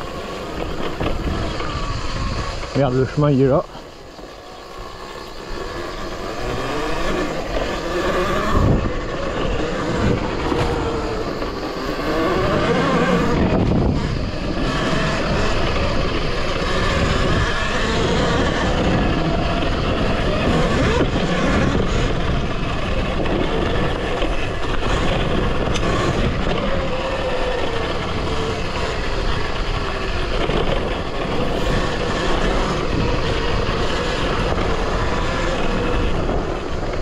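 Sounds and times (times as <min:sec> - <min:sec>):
electric motor whine: 0:00.0 - 0:37.0.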